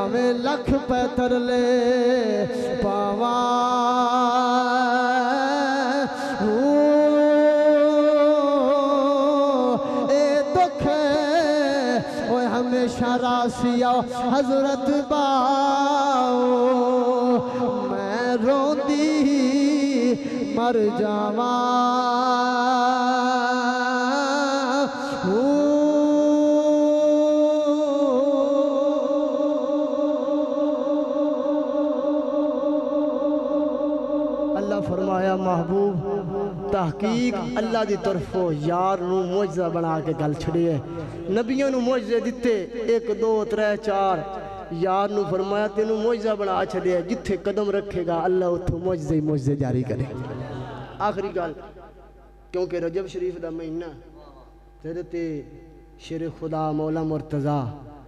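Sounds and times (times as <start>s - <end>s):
man singing long drawn-out notes: 0.0s - 41.5s.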